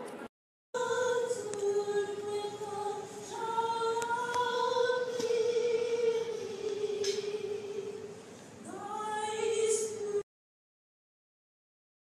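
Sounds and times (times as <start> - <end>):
group singing slow song: 0.8 - 10.2.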